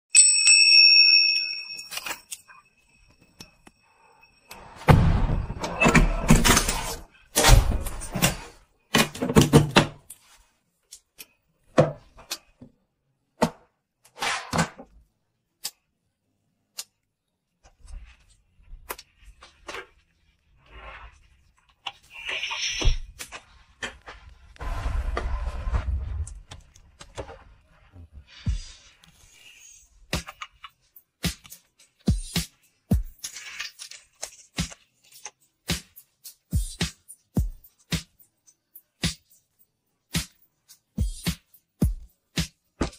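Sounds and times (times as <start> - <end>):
door opening and shutting: 4.6 - 10.0.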